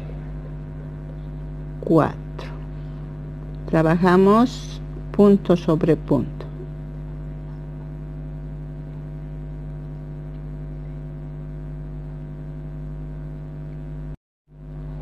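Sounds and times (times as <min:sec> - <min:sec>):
electrical mains hum: 0:00.0 - 0:15.0.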